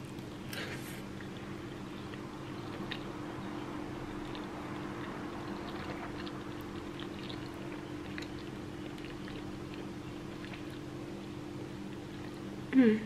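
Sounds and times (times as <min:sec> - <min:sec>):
mouth clicks chewing: 0:01.2 - 0:10.9.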